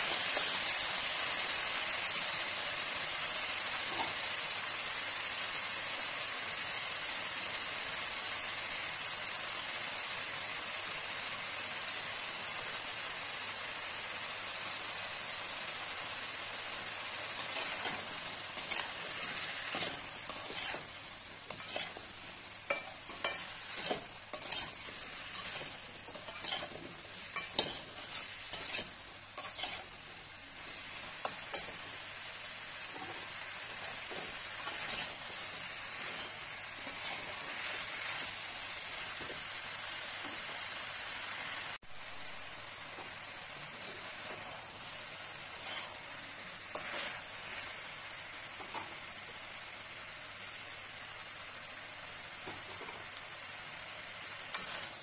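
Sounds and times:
vegetables sizzling in a pan: 0:00.0 - 0:55.0
metal spatula scraping pan: 0:17.4 - 0:30.1, 0:32.9 - 0:35.3, 0:45.5 - 0:46.1, 0:46.7 - 0:47.3.

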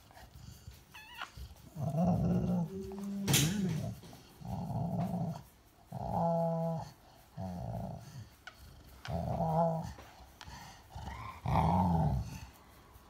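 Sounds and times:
dog growling low: 0:01.6 - 0:08.3, 0:09.0 - 0:12.6.

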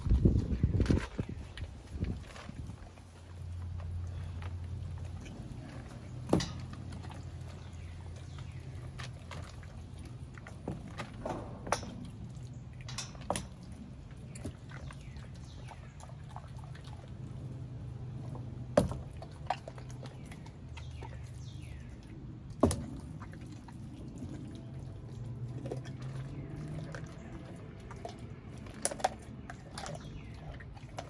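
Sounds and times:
dog chewing wetly: 0:00.0 - 0:31.0
low hum: 0:00.0 - 0:31.0.

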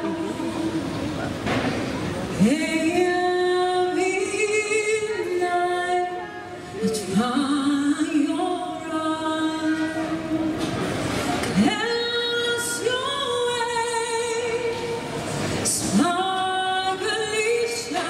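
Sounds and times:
woman singing: 0:02.4 - 0:10.6, 0:11.6 - 0:15.0, 0:15.6 - 0:18.0.

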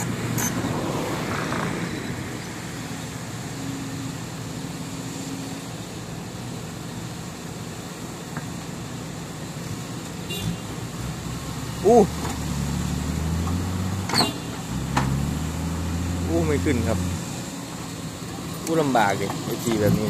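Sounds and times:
excavator diesel engine under load: 0:00.0 - 0:10.1, 0:10.8 - 0:20.0.

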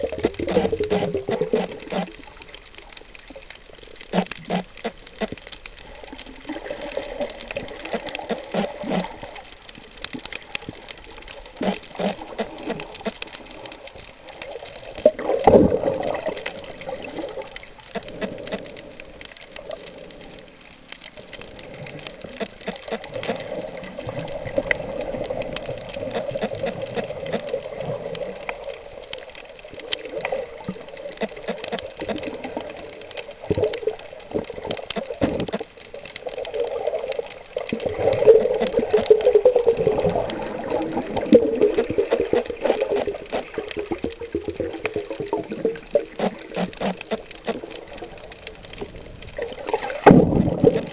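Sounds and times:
small clicks and crackles: 0:00.0 - 0:50.9
underwater water rush: 0:00.0 - 0:50.9
water whoosh: 0:37.6 - 0:50.9.

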